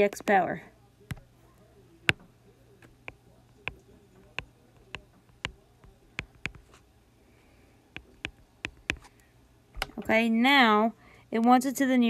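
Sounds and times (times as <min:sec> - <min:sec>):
stylus tapping on glass screen: 0:02.1 - 0:06.7, 0:08.0 - 0:09.1.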